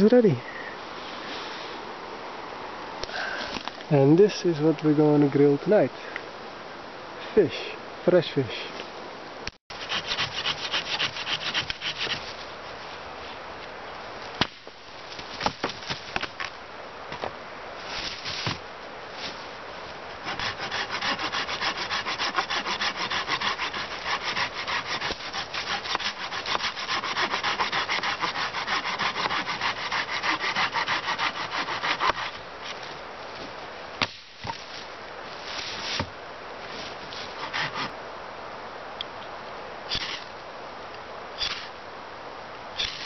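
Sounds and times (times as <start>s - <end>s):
hand saw cutting wood: 9.7s - 12.2s, 20.2s - 32.4s, 37.3s - 37.9s.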